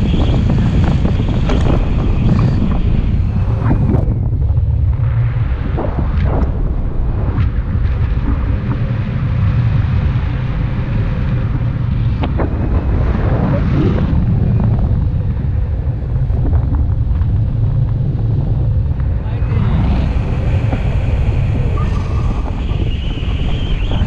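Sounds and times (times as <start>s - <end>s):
wind rumbling on microphone: 0.0s - 24.0s.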